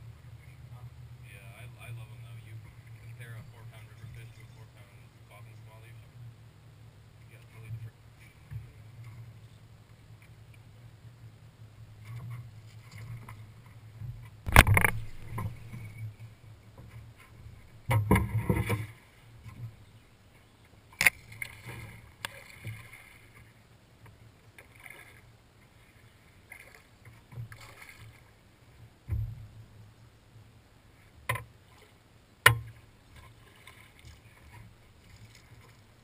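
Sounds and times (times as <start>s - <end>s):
low steady rumble: 0.0s - 36.0s
knocks and thumps on boat deck: 16.8s - 19.8s, 29.0s - 29.6s.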